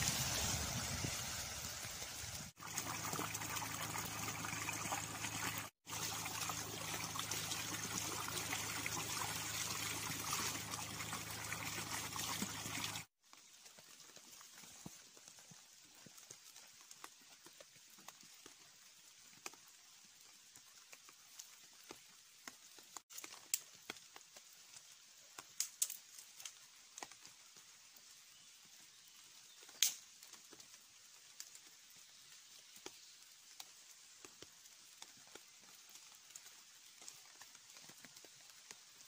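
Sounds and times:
campfire crackling and popping: 0:22.4 - 0:27.3, 0:29.6 - 0:30.7.

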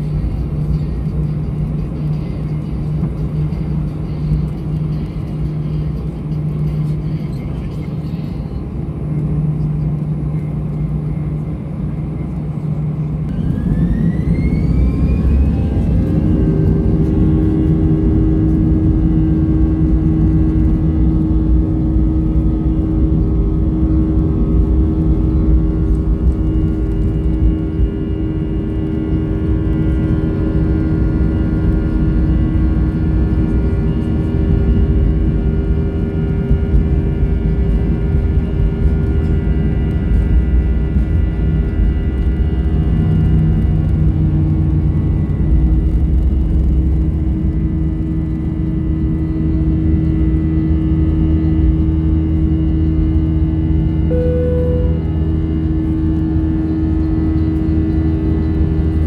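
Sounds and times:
jet engines spooling up: 0:12.9 - 0:35.8.

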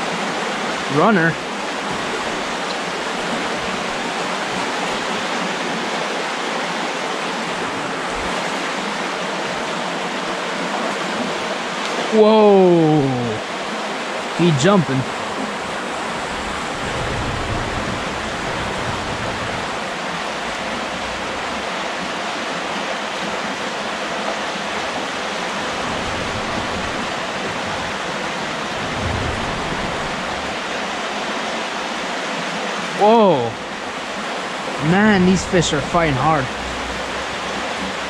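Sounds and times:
creek flowing over rocks: 0:00.0 - 0:38.0
low rumbles: 0:15.7 - 0:22.2, 0:25.6 - 0:31.1, 0:35.5 - 0:38.0.

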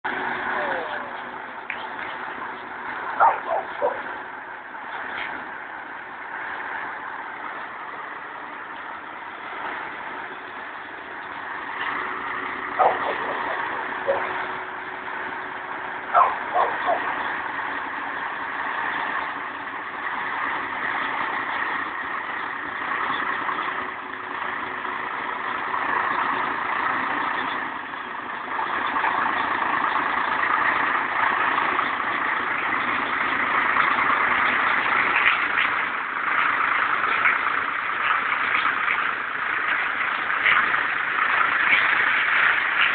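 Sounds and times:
truck diesel engine running: 0:00.0 - 0:42.9.

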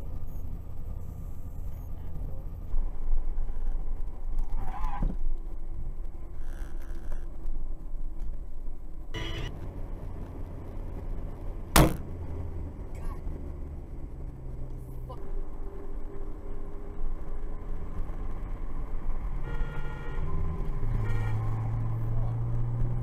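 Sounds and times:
car engine and road rumble: 0:00.0 - 0:23.0
short horn-like tone: 0:09.2 - 0:09.6, 0:19.4 - 0:21.7
sharp loud bang: 0:11.8 - 0:12.0.

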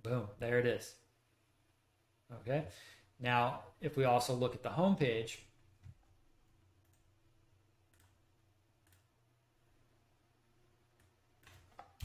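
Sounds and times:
computer mouse clicks: 0:06.8 - 0:07.1, 0:07.9 - 0:08.2, 0:08.8 - 0:09.1.

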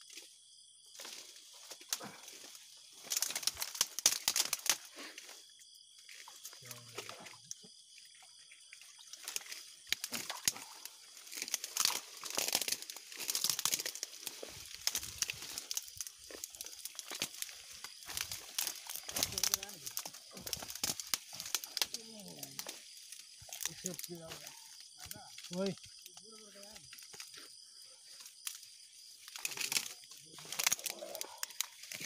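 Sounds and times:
leafy plants rustling: 0:00.0 - 0:07.0, 0:09.0 - 0:32.0
slatted fish trap crackling: 0:02.9 - 0:05.0, 0:09.2 - 0:25.7, 0:29.3 - 0:32.0.

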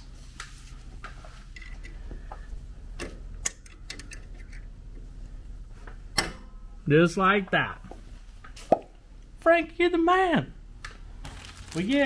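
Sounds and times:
steady low hum: 0:00.0 - 0:11.7.

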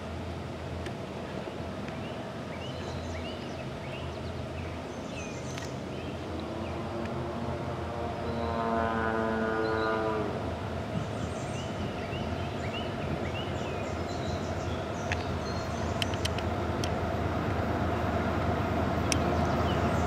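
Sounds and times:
low rumble of train: 0:00.0 - 0:20.0
birds chirping: 0:01.3 - 0:06.9, 0:10.9 - 0:17.0, 0:18.8 - 0:20.0
locomotive air horn blast: 0:06.8 - 0:10.5.

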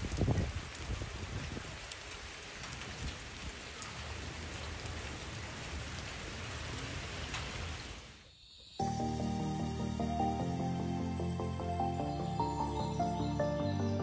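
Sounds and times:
rain on pavement: 0:00.0 - 0:08.7.

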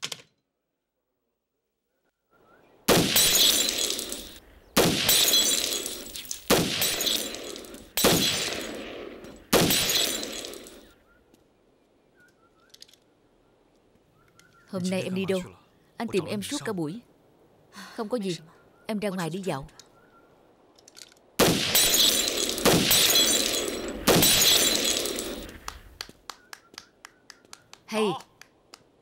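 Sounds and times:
glass breaking: 0:02.9 - 0:10.9, 0:21.6 - 0:25.6
pistol shots: 0:02.9 - 0:10.9, 0:21.4 - 0:25.6.

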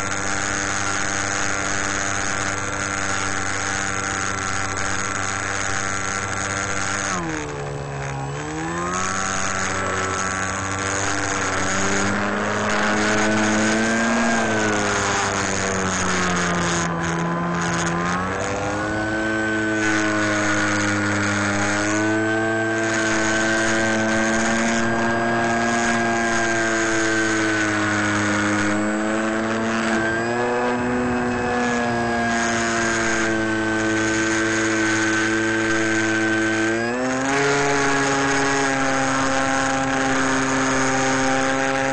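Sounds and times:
model airplane motor whine: 0:00.0 - 0:41.9.

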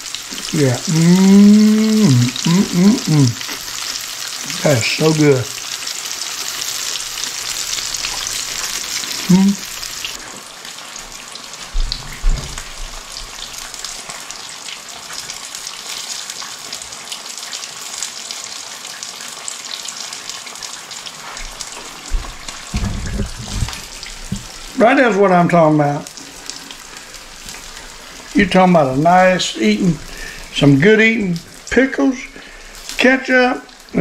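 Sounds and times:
fish deep-frying in oil: 0:00.0 - 0:34.0
short low voice: 0:00.6 - 0:03.4
dull thumps: 0:22.1 - 0:24.5.

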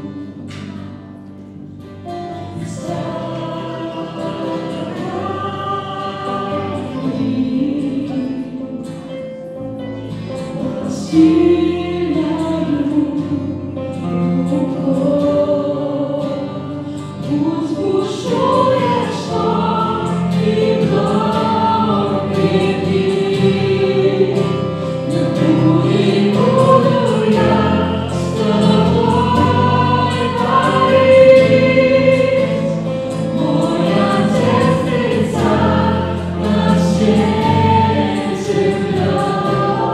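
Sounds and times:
acoustic guitar: 0:00.0 - 0:39.9
keyboard: 0:00.0 - 0:39.9
group singing: 0:02.3 - 0:09.0, 0:10.3 - 0:39.9
bass guitar: 0:19.3 - 0:39.9.

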